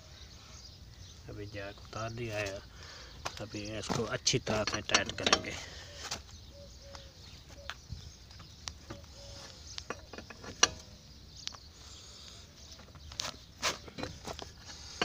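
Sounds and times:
wheel brace clicking on wheel nuts: 0:03.3 - 0:05.7, 0:08.4 - 0:11.6, 0:12.8 - 0:15.0.

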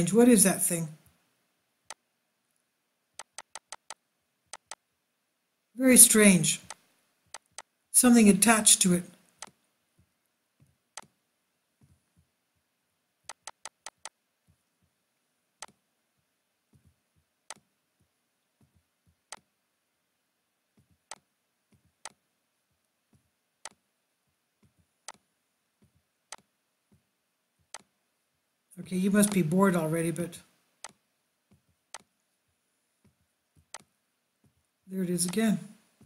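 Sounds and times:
computer mouse clicking: 0:03.2 - 0:04.8, 0:06.6 - 0:07.7, 0:11.0 - 0:11.2, 0:13.3 - 0:14.2, 0:15.6 - 0:15.8, 0:22.0 - 0:22.2.

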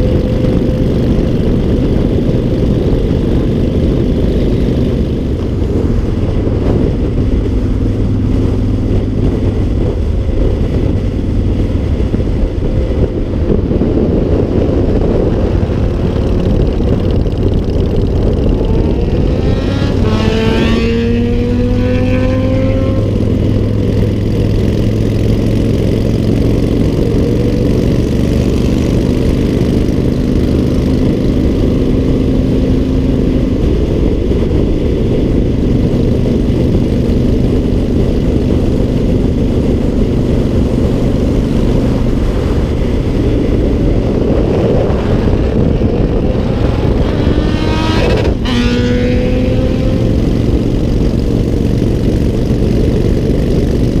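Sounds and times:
motorcycle engine: 0:00.0 - 0:54.0
wind and road noise: 0:00.0 - 0:54.0.

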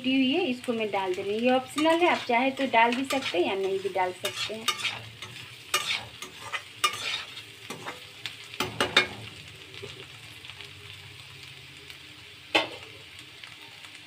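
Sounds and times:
vegetables sizzling in oil: 0:00.0 - 0:14.0
spatula scraping metal pan: 0:01.7 - 0:08.0.

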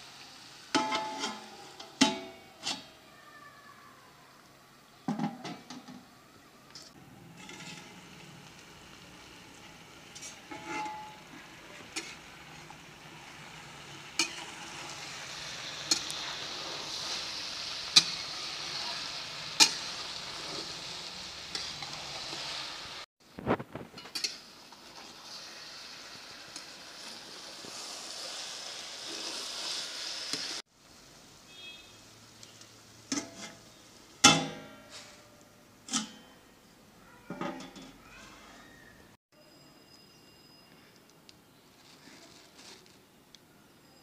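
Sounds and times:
curry sizzling in a pan: 0:00.0 - 0:05.0, 0:06.9 - 0:36.6
metal spatula clinking on pan: 0:00.8 - 0:02.9.

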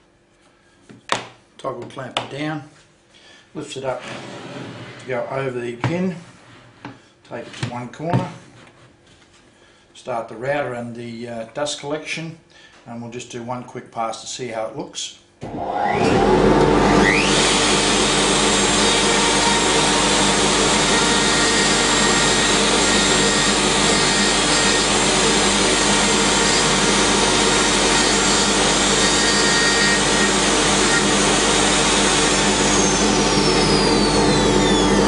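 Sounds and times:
dust extractor rushing air: 0:15.4 - 0:35.0
wood router whining: 0:15.4 - 0:35.0.

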